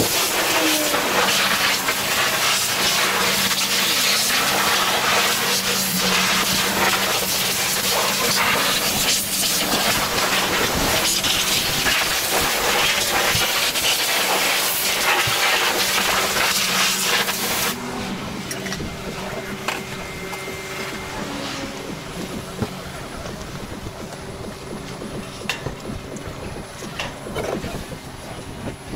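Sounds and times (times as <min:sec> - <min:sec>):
pressure washer spraying hiss: 0:00.0 - 0:17.8
low steady hum: 0:17.8 - 0:28.9.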